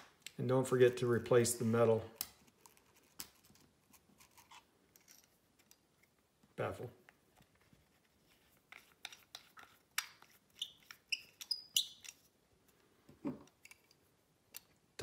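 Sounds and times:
short squeaky scrapes: 10.5s - 12.2s.

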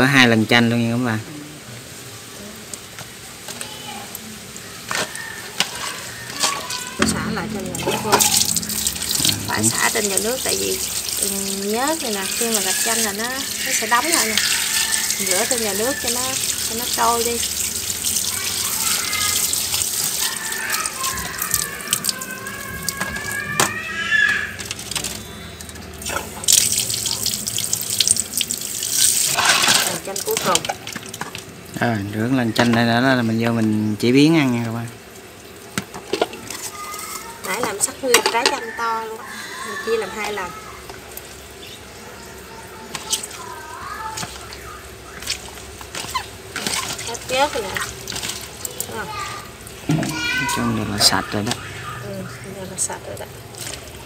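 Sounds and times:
wet squelching: 7.8s - 23.6s, 42.6s - 54.0s
tap water splashing: 7.8s - 31.6s, 32.6s - 33.8s, 35.7s - 38.7s, 39.9s - 41.4s, 42.8s - 52.0s, 53.1s - 54.0s.

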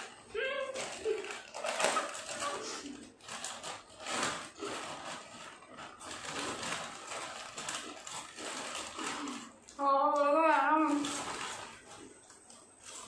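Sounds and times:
potato chips crunching: 0.0s - 13.0s.

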